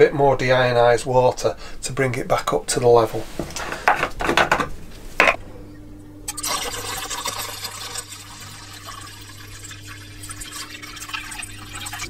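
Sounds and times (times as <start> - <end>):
steady low hum: 0.0 - 12.0
water pouring and splashing: 6.3 - 12.0.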